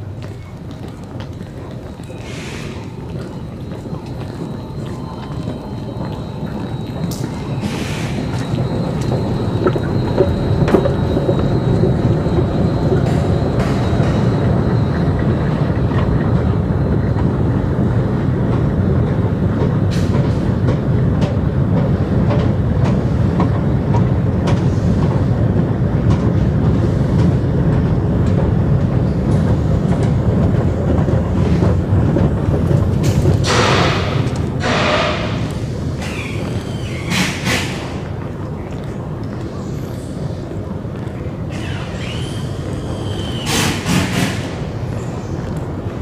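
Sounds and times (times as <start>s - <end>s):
escalator rumbling: 0.0s - 46.0s
escalator steps clicking: 0.1s - 39.6s.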